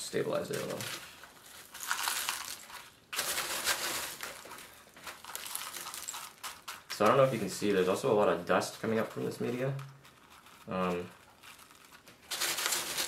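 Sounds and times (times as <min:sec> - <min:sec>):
potting mix crunching and clinking: 0:00.0 - 0:13.0.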